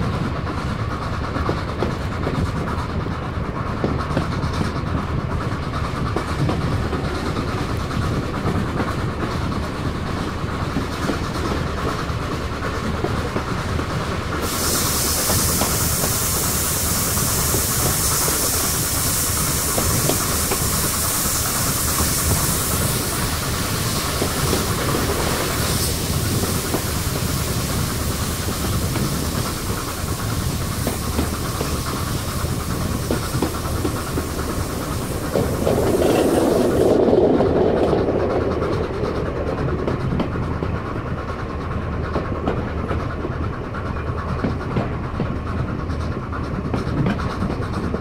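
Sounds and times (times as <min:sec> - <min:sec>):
train wheels clattering on rails: 0:00.0 - 0:48.0
high hiss: 0:14.4 - 0:37.0.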